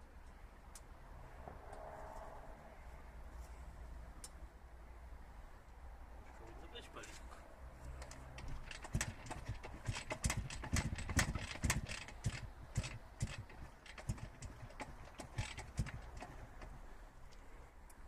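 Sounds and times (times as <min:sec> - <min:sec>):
engine turning over: 0:08.0 - 0:16.8
kick lever clattering knocks: 0:08.4 - 0:16.8.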